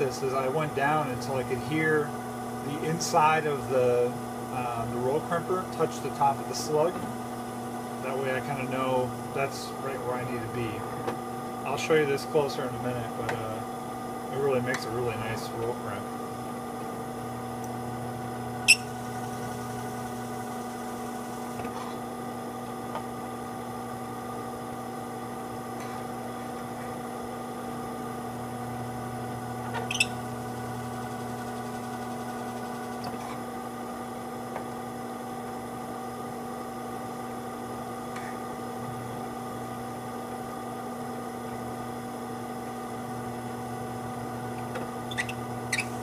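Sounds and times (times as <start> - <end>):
drill press running: 15.1 - 35.5.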